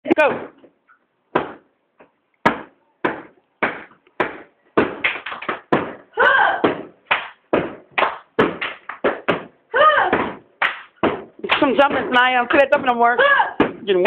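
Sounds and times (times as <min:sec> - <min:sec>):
feet thudding on wooden floor: 0:06.6 - 0:13.0.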